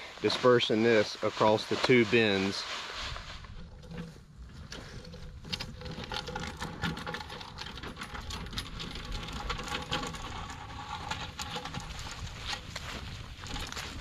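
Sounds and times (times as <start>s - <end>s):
spreader rattling and clicking: 3.6s - 13.9s.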